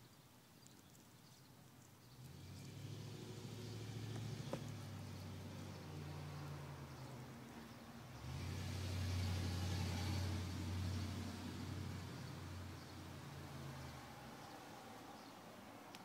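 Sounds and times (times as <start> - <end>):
traffic engine hum: 2.2 - 16.0
vehicle passing by: 2.2 - 16.0.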